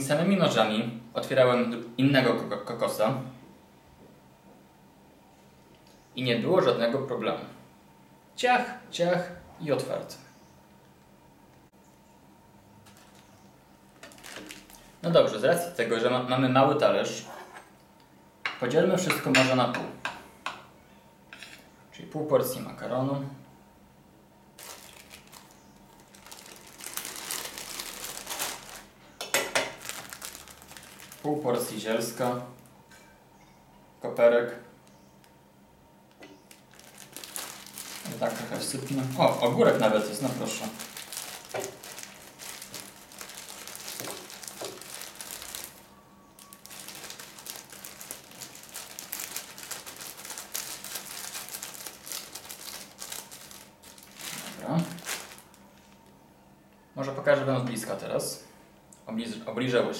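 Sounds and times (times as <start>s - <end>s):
plastic food bag rustling: 12.8s - 15.4s, 24.6s - 32.7s, 36.4s - 56.2s.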